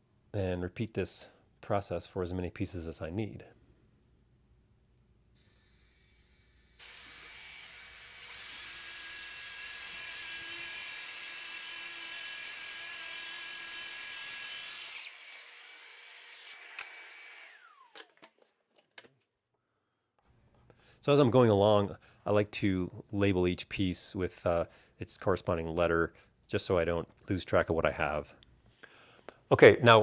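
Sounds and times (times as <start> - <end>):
circular saw cutting plywood: 5.4 - 18.0.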